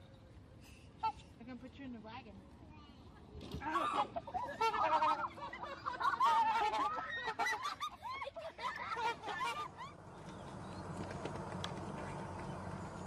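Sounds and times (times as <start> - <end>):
low background rumble: 4.1 - 13.0.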